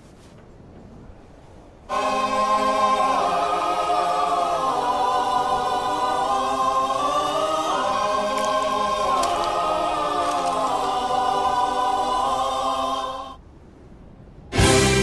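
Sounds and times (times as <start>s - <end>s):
choir singing long chords: 1.9s - 13.4s.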